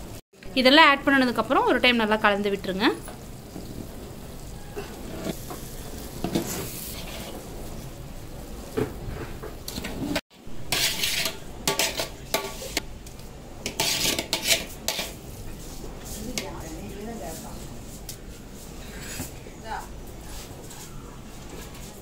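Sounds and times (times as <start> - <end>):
ladle scraping rice in pot: 6.1 - 7.5, 9.7 - 12.8, 13.6 - 15.8.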